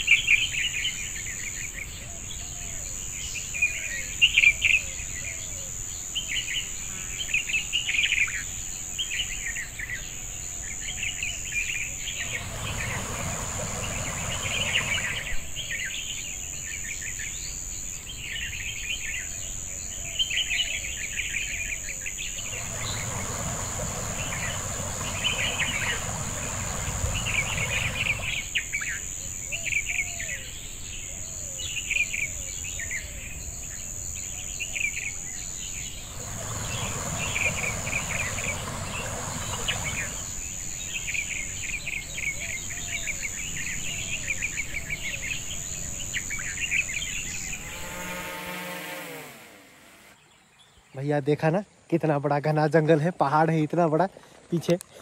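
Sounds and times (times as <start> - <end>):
birds chirping and calling: 10.7 - 17.3, 19.9 - 33.6, 34.3 - 50.9
high-pitched insect drone: 11.4 - 16.0, 22.2 - 29.5, 35.3 - 41.3, 45.1 - 50.2
even rushing noise: 12.1 - 15.6, 22.4 - 28.5, 35.9 - 40.5.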